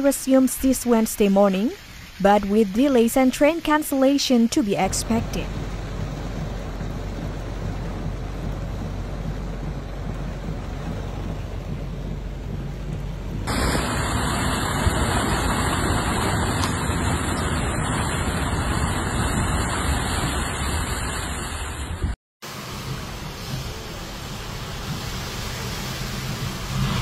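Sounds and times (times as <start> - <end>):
floodwater rushing: 0.0 - 27.0
muffled rumbling inside car: 4.8 - 20.2, 22.5 - 27.0
heavy rain: 4.8 - 27.0.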